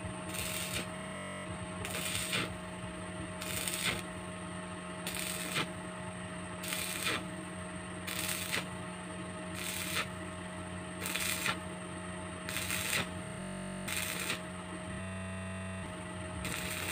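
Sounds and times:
arc welding crackling: 0.0 - 4.3, 5.0 - 5.9, 6.6 - 7.4, 8.0 - 8.8, 9.5 - 10.3, 11.0 - 11.7, 12.5 - 14.5, 15.1 - 16.9
electrical hum: 0.0 - 16.9.

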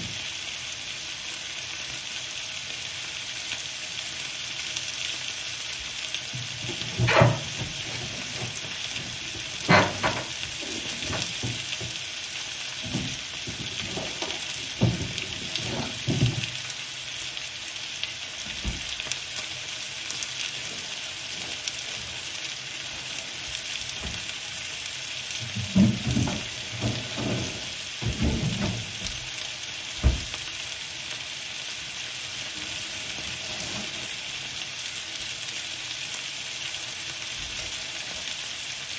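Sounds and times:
steady hiss: 0.0 - 38.9
items knocking and thudding: 6.3 - 12.0, 12.8 - 16.6, 25.4 - 29.2, 30.0 - 30.4
fridge door shutting: 6.6 - 11.8.

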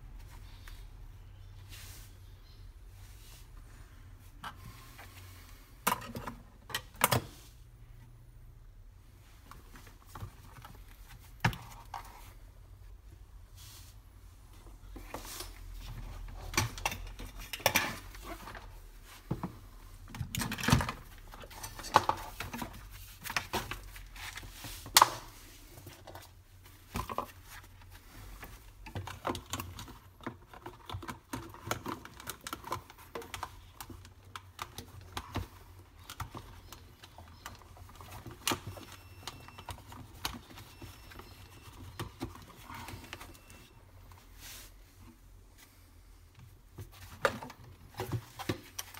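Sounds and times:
tools and metal parts clattering: 15.3 - 18.7, 20.1 - 23.9.

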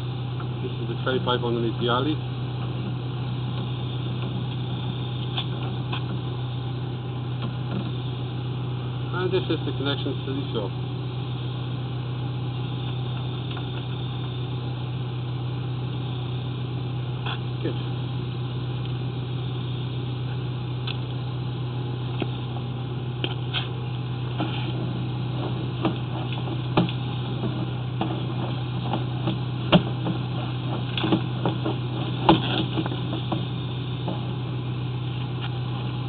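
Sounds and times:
low machine hum: 0.0 - 36.0
sharp clicks and knocks: 25.4 - 34.3.

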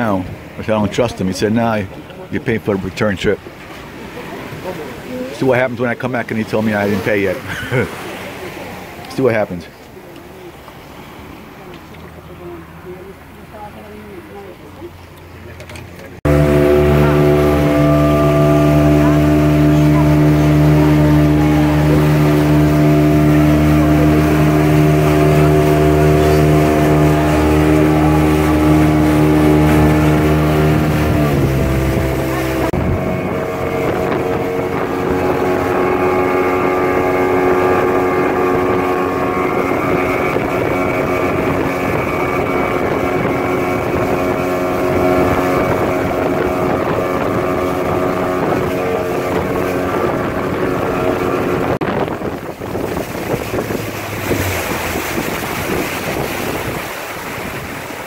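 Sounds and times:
motorboat engine running: 0.0 - 58.0
wind on microphone: 16.2 - 58.0.

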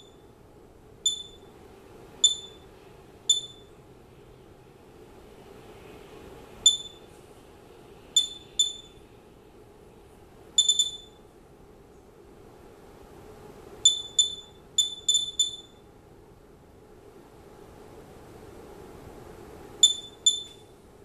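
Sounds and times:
geiger counter beeps: 0.0 - 0.2, 1.1 - 1.5, 2.2 - 2.6, 3.3 - 3.7, 6.7 - 7.1, 8.2 - 9.0, 10.6 - 11.2, 13.8 - 15.8, 19.8 - 20.6.

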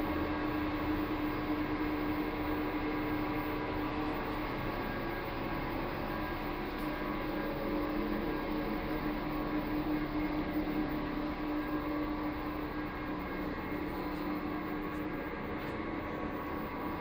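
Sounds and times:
kitchen equipment humming and hissing: 0.0 - 17.0.

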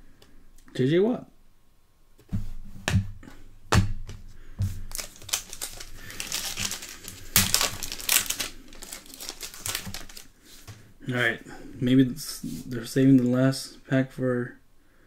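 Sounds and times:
foil wrapper crinkling: 4.8 - 10.7.

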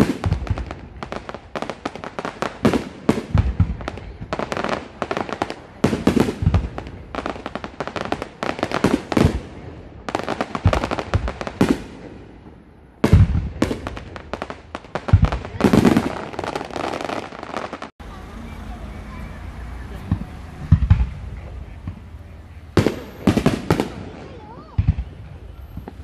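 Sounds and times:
fireworks bangs and crackling: 0.0 - 26.0.

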